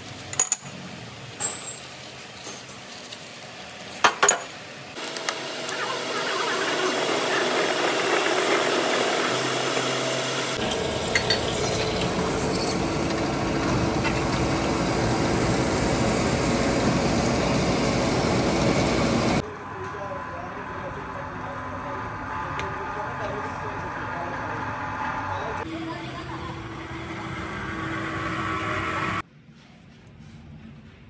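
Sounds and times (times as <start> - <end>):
metal pins clinking: 1.4 - 4.6
metal lathe cutting: 5.0 - 19.4, 22.0 - 29.2.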